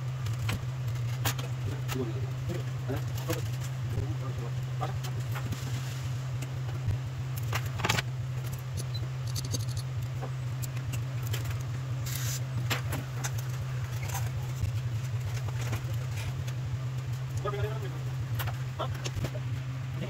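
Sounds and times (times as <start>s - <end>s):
steady low hum: 0.0s - 20.0s
small metal clicks and scrapes: 7.3s - 17.5s.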